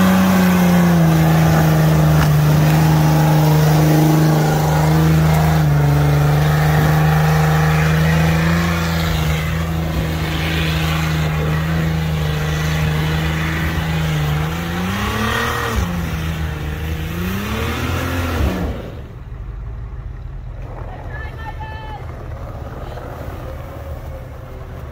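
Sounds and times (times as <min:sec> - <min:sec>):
engine revving high: 0:00.0 - 0:19.1
tires spinning in snow: 0:00.0 - 0:24.9.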